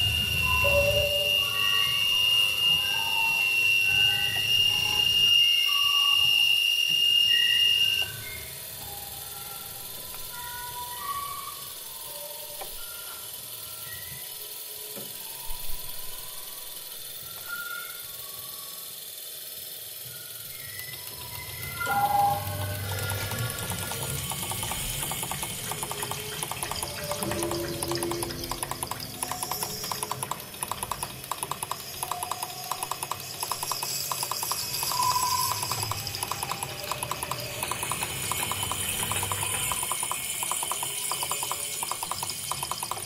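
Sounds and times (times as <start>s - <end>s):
high whistling tone: 0.0s - 19.0s, 19.9s - 43.0s
clicks: 20.9s - 43.0s.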